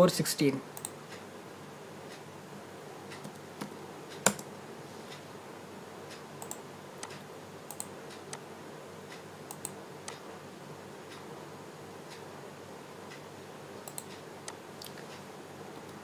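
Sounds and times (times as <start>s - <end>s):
faint background hum: 0.0s - 16.0s
mouse clicking: 0.8s - 1.0s, 3.1s - 4.5s, 6.4s - 8.4s, 9.5s - 10.2s, 13.8s - 14.6s
keyboard keys tapping: 3.2s - 4.5s.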